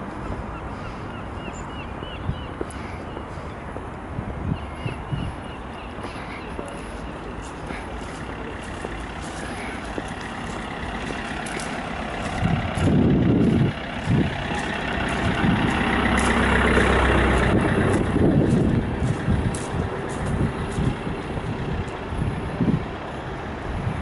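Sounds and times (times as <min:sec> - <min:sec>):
truck engine and tyres passing: 0:00.0 - 0:24.0
loud low rumble: 0:07.4 - 0:23.1.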